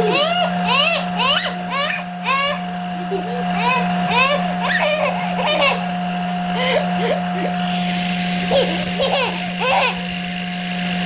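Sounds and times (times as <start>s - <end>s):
child squealing and giggling: 0.0s - 5.9s
steady hum: 0.0s - 11.0s.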